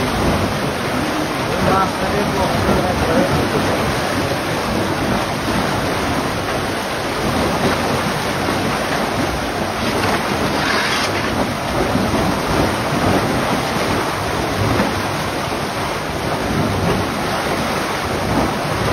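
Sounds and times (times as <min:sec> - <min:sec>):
water rushing through channel: 0:00.0 - 0:18.9.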